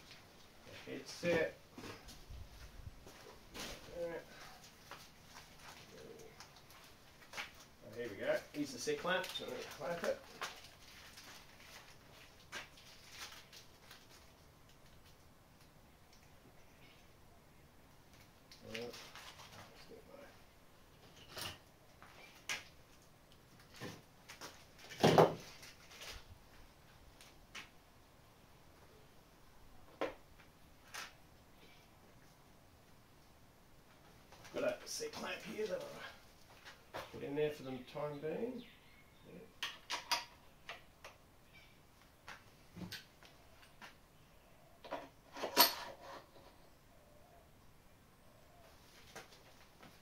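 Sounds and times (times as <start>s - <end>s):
plastic packaging clicks and crinkles: 9.2s - 16.3s, 18.1s - 19.8s
rustling scrape: 45.3s - 46.6s.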